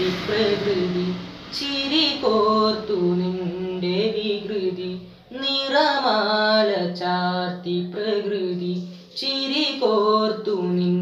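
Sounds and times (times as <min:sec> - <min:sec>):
boy singing solo: 0:00.0 - 0:11.0.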